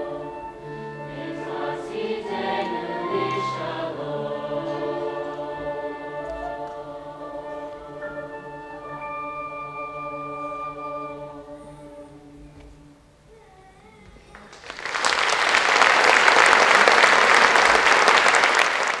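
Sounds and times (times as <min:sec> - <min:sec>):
choir singing a hymn: 0:00.0 - 0:13.0
audience applause: 0:14.3 - 0:19.0.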